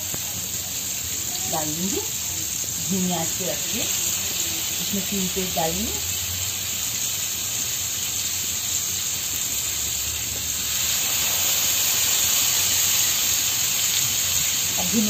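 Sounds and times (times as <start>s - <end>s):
chicken sizzling in butter: 0.0s - 15.0s.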